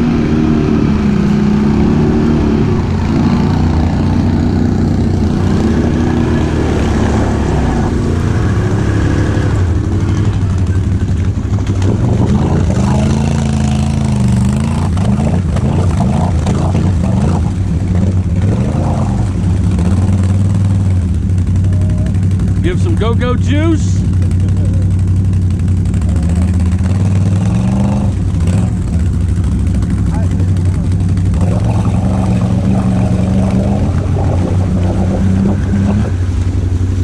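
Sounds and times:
atv engine revving: 0.0 - 37.0
atv engine idling: 8.0 - 18.5, 19.2 - 37.0.

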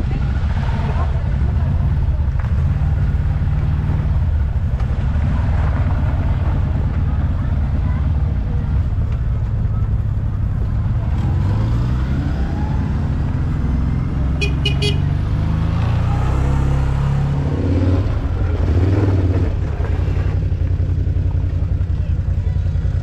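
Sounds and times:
vehicle engine running: 0.0 - 23.0
horn toots: 14.3 - 15.2.

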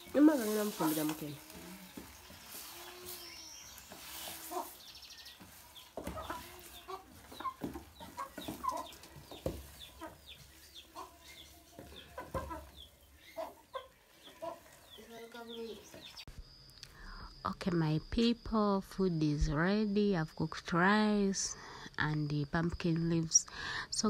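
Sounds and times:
chickens clucking: 0.0 - 16.3.

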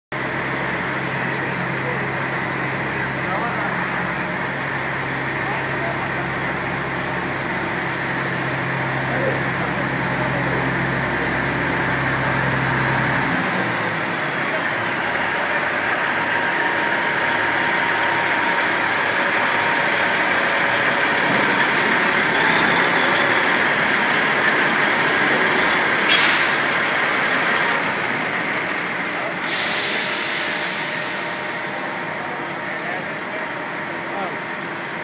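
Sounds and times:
truck diesel engine running: 0.1 - 35.0
air brakes hissing: 26.0 - 26.7, 28.7 - 32.1.

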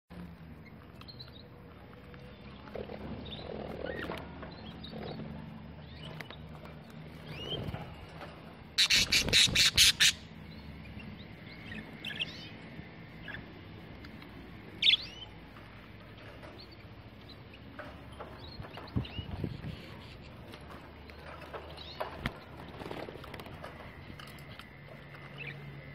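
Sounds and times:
budgerigars chirping and squawking: 8.8 - 12.5, 14.8 - 15.3.

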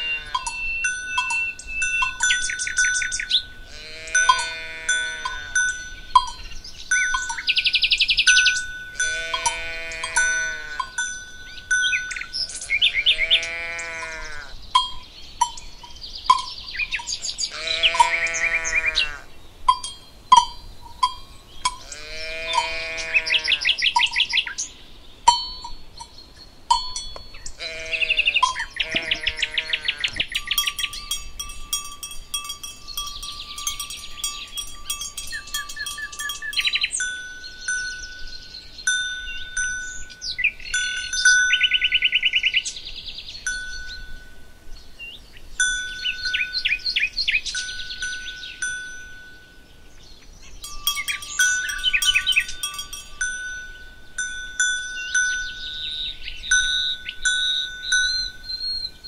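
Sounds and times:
cowbells ringing: 0.0 - 24.6, 25.2 - 44.8, 45.5 - 59.0
livestock calling: 0.0 - 24.7, 27.4 - 38.3
birds chirping: 0.0 - 59.0.

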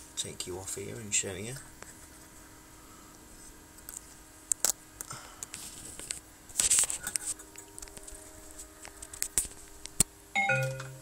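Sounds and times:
faint steady hum: 0.0 - 11.0
rustling scrape: 5.6 - 9.8.

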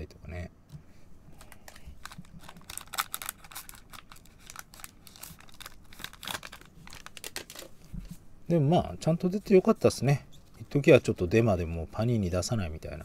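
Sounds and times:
foil wrapper crinkling and tearing: 1.4 - 7.8.

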